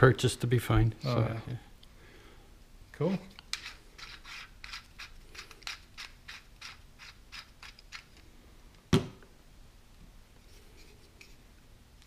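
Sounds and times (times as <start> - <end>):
metal threads rasping: 3.4 - 8.1.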